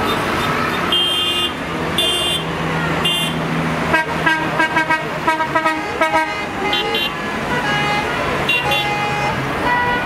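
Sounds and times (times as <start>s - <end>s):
tractor engines running: 0.0s - 10.0s
tractor horn toots: 3.1s - 10.0s.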